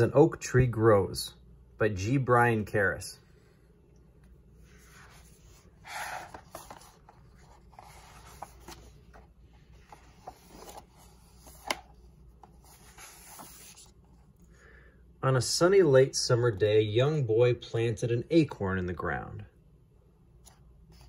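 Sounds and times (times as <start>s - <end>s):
book pages turning: 4.7s - 14.3s.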